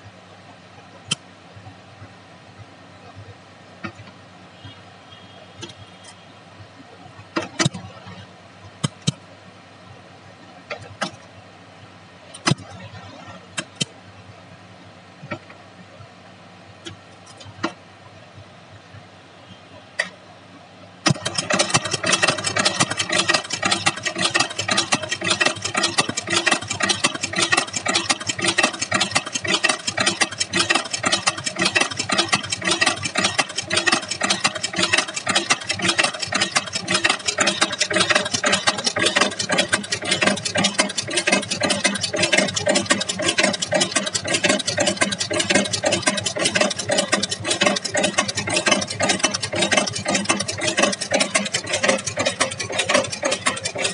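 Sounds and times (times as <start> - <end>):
chain-making machine metallic clatter: 21.1 - 53.9.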